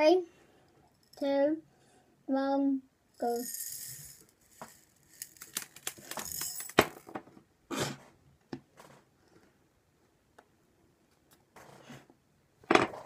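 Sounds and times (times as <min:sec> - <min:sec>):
candies pouring with rattling clicks: 0:03.2 - 0:07.0
candies ticking onto tabletop: 0:04.6 - 0:07.2.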